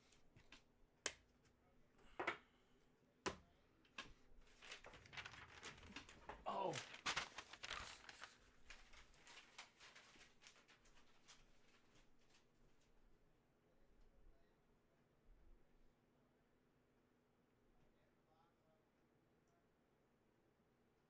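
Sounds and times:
plastic crinkling and rustling: 0:04.4 - 0:13.0.

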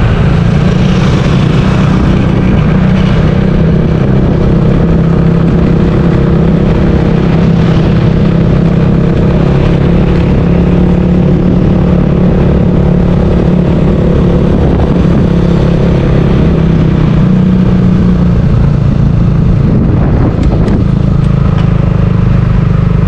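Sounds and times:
vehicle engine running: 0:00.0 - 0:23.0.

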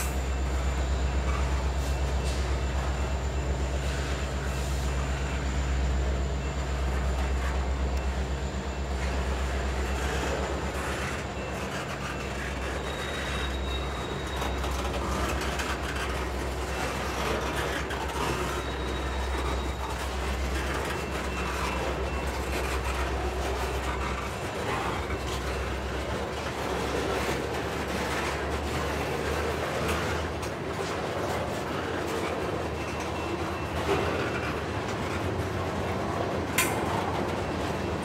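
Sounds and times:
faint high wheel squeal: 0:00.0 - 0:38.0
train wheels rumbling and clacking: 0:00.0 - 0:38.0.

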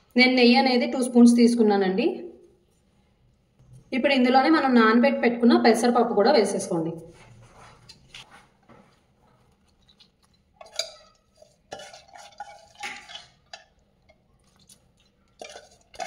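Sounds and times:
bowls clinking and knocking: 0:09.7 - 0:16.0.

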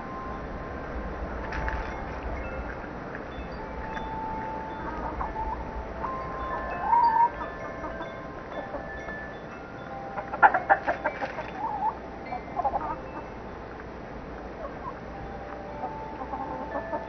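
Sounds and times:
wind chime tones: 0:00.0 - 0:13.7, 0:15.1 - 0:17.0
hens clucking: 0:04.4 - 0:09.2, 0:10.2 - 0:13.2, 0:15.8 - 0:17.0.

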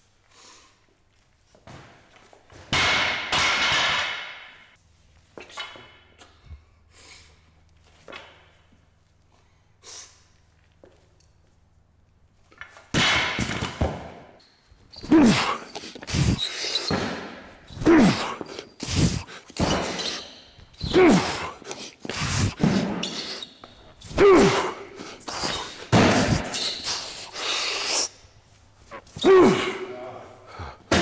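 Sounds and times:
barbell dropped on rubber pads: 0:02.6 - 0:04.6, 0:12.9 - 0:14.3
person exhaling forcefully: 0:15.1 - 0:20.2, 0:20.8 - 0:23.4, 0:24.1 - 0:28.2, 0:28.9 - 0:31.0.

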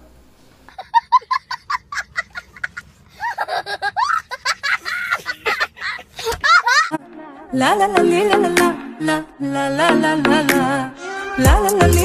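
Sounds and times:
young child laughing: 0:00.7 - 0:07.0.

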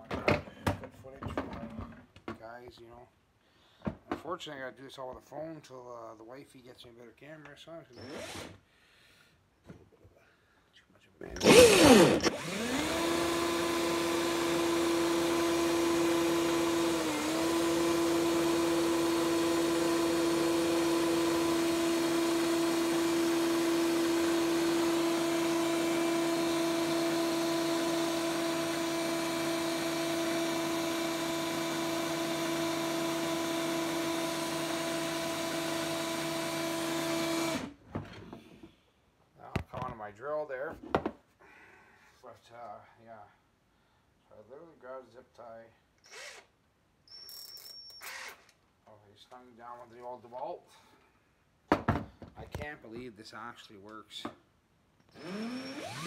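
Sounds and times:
power drill whining: 0:08.0 - 0:08.6, 0:11.3 - 0:37.8, 0:46.0 - 0:48.6, 0:55.0 - 0:56.0.

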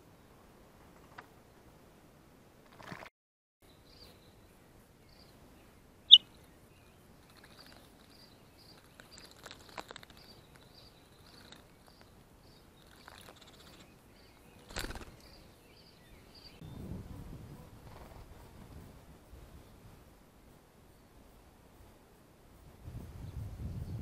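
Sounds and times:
small birds chirping: 0:03.6 - 0:16.9.

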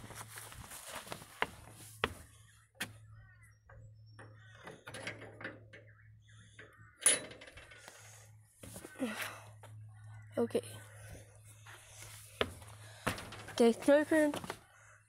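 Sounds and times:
footsteps on wooden steps: 0:00.0 - 0:02.3, 0:11.8 - 0:14.6
metal gate latch rattling: 0:04.2 - 0:05.9, 0:06.6 - 0:07.8.

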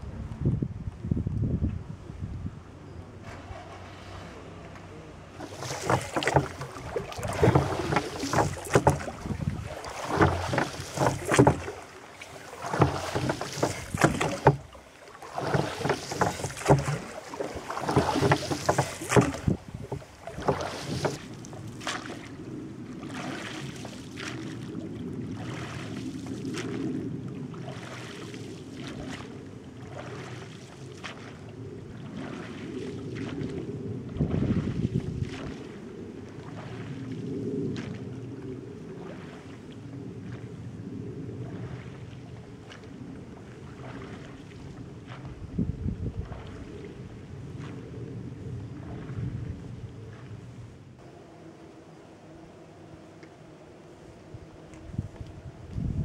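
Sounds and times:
wind: 0:00.0 - 0:56.0
oars splashing and knocking: 0:03.2 - 0:40.6, 0:41.2 - 0:50.4
water washing: 0:03.3 - 0:35.8.

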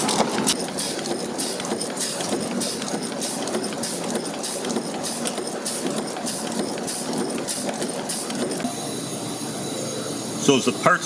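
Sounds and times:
stamping press strokes: 0:00.0 - 0:08.7
steady machine noise: 0:00.0 - 0:11.0.

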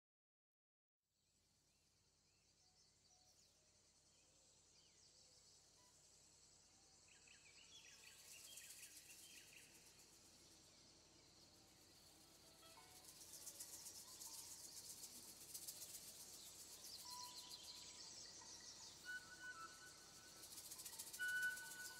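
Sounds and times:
rapid high insect trill: 0:08.0 - 0:21.9
bird chirps: 0:12.6 - 0:21.9
insect trilling: 0:19.8 - 0:21.9.

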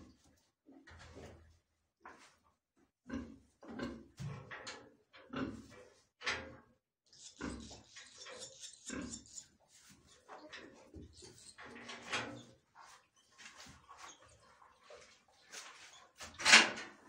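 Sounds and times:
pig grunting: 0:03.0 - 0:04.1, 0:05.3 - 0:05.8, 0:07.2 - 0:09.6
swallow chicks twittering: 0:07.1 - 0:10.4.

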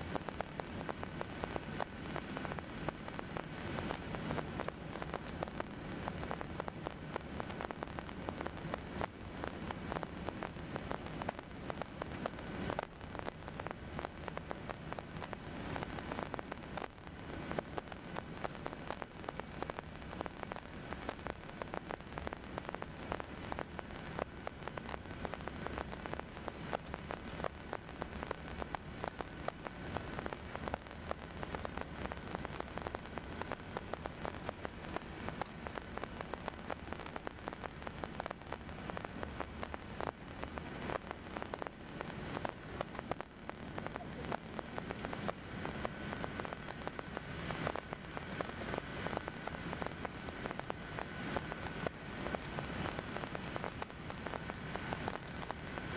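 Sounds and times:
microphone distortion crackling: 0:00.0 - 0:55.9
thin steady whine: 0:00.0 - 0:55.9.

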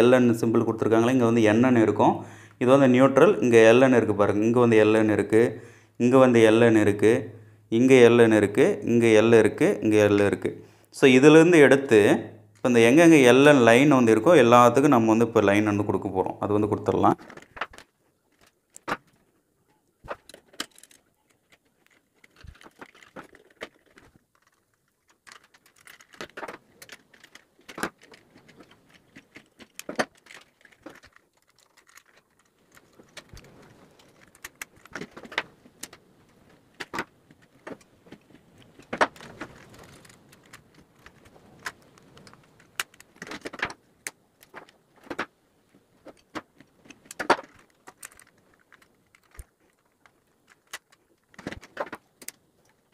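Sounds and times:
wire rustling: 0:17.1 - 0:52.9.

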